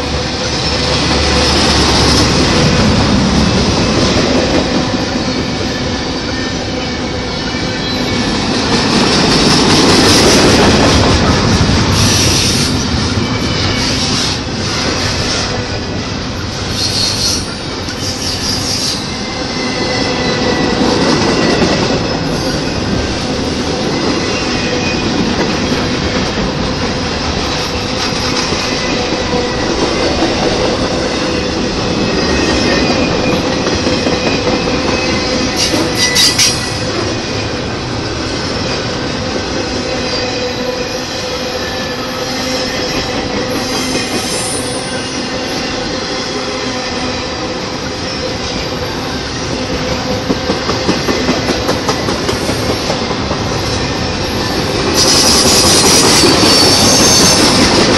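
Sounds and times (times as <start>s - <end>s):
train cars clanking: 0.0s - 57.9s
train wheels rumbling on rails: 0.0s - 57.9s.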